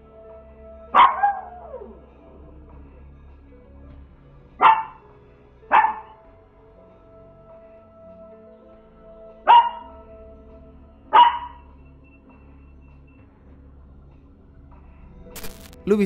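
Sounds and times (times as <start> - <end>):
small dog barking: 0.9 - 1.8, 4.6 - 5.0, 5.7 - 6.2, 9.5 - 9.9, 11.1 - 11.6.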